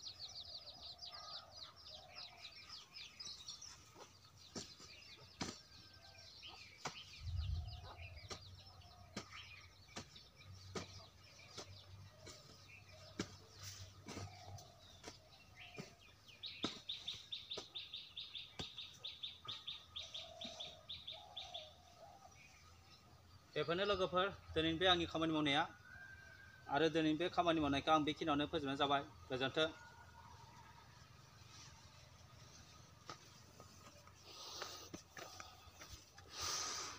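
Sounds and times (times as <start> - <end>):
birds chirping and calling: 0.0 - 36.9
hoe chopping into dry soil: 4.0 - 19.0.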